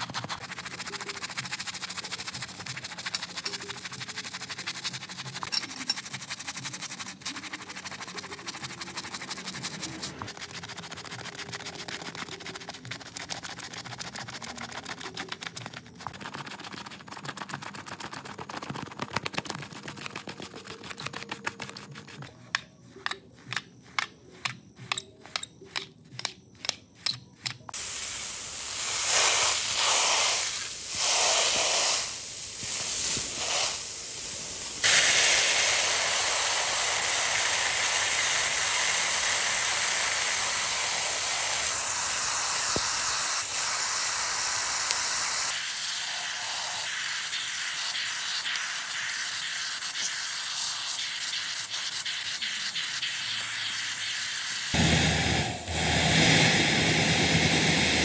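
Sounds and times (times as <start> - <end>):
water spray hissing: 0.0 - 18.6, 27.7 - 58.0
brush scrubbing wet rug: 0.0 - 24.9, 27.8 - 33.9.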